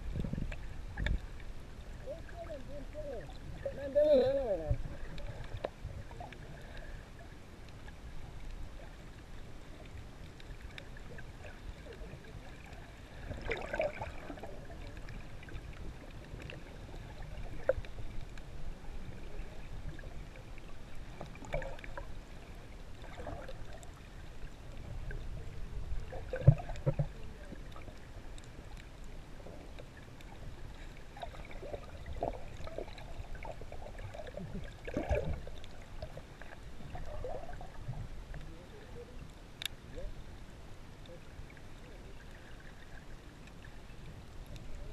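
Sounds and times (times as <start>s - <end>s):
muffled underwater water rumble: 0.0s - 44.9s
short knocks underwater: 26.0s - 27.5s, 31.2s - 36.2s.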